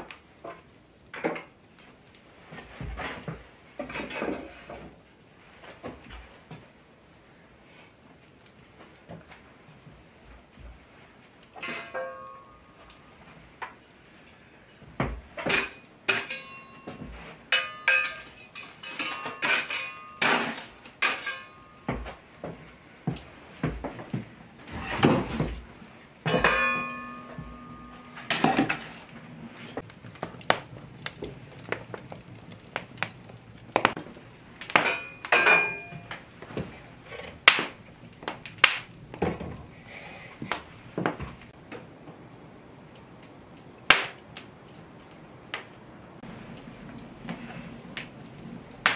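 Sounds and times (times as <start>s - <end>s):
iron cookware clanking: 11.6s - 12.8s, 15.4s - 22.2s, 26.2s - 29.9s, 34.7s - 36.2s.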